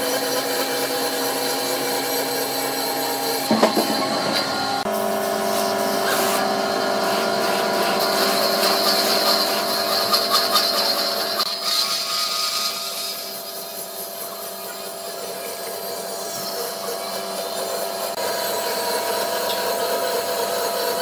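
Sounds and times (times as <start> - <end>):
band saw cutting wood: 0.0 - 21.0.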